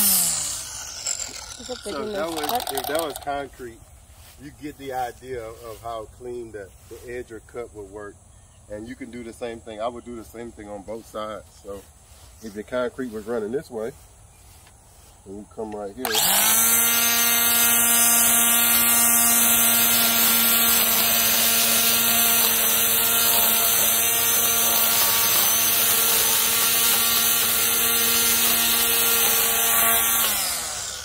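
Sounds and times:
string trimmer whining: 0.0 - 4.4, 15.3 - 31.0.

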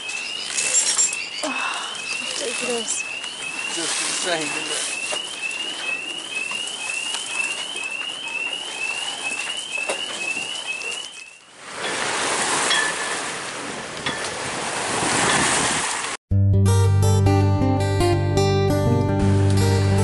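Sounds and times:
electronic alarm chirping: 0.0 - 11.4
wind: 0.0 - 16.2
water rushing past hull: 1.8 - 16.2.

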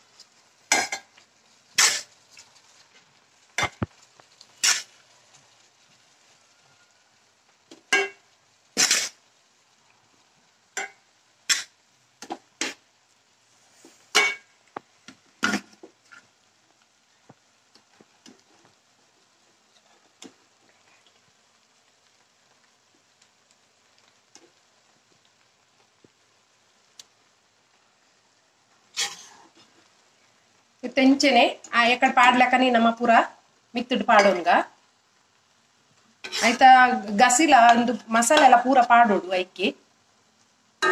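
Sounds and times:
spoon scraping cooking pot: 36.2 - 38.5.

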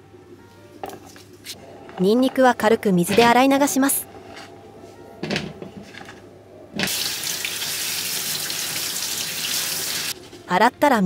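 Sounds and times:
faucet water spraying: 6.9 - 10.2.

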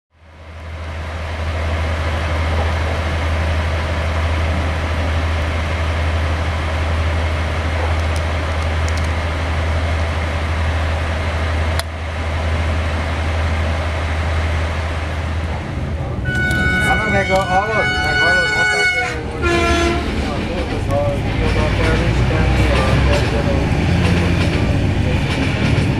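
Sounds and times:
diesel locomotive engine humming: 0.1 - 25.9.

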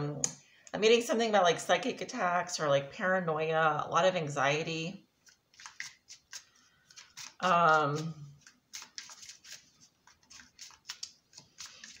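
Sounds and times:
cards shuffling: 5.2 - 12.0.

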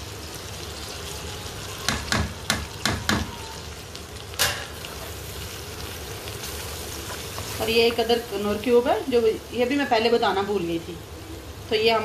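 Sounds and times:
masala sizzling in a pan: 0.0 - 12.0
loud knock: 1.9 - 3.3.

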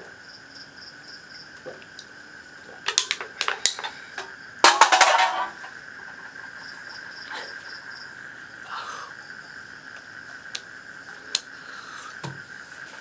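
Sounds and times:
night insects chirring: 0.0 - 13.0
drink can clattering on concrete: 2.9 - 4.0, 4.6 - 5.7.

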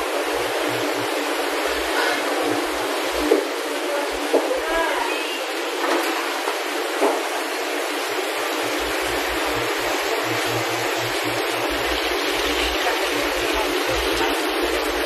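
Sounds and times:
water rushing and bubbling: 5.5 - 15.0.

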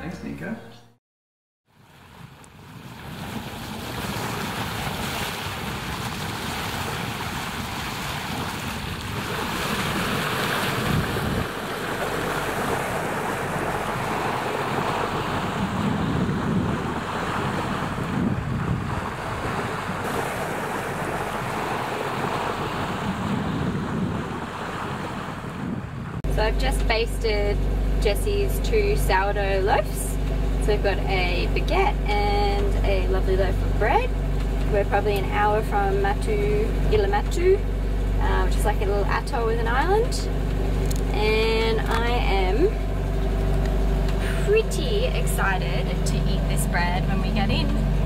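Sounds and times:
water rushing and splashing: 1.7 - 26.7
wind buffeting microphone: 3.1 - 48.0.

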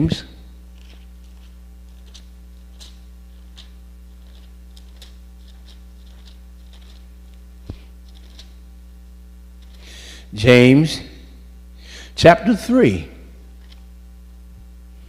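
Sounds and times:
low electrical hum: 0.0 - 15.0
pages being turned: 0.7 - 8.7, 9.6 - 9.8.

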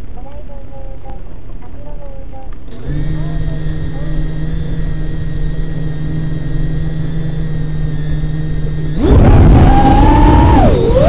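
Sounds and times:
drone motors humming: 2.7 - 11.0
propeller whine rising: 3.0 - 11.0.

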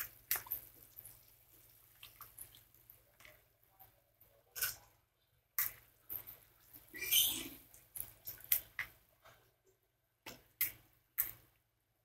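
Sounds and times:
water dripping: 0.0 - 3.4, 5.6 - 9.0
wet rice squishing: 0.0 - 9.2.

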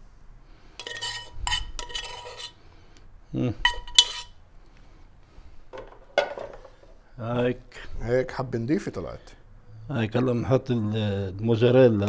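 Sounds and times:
metal spoon scraping cooking pot: 0.8 - 2.6, 3.6 - 4.4.

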